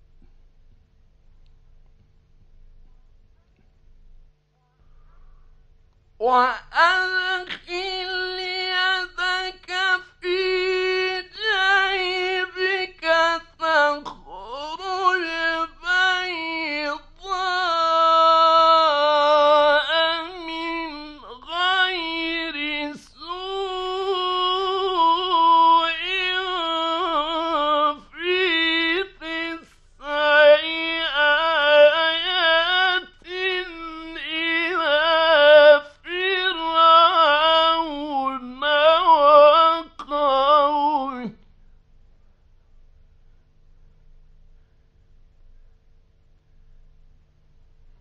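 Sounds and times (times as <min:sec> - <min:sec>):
man reciting melodically: 0:06.2 - 0:41.4.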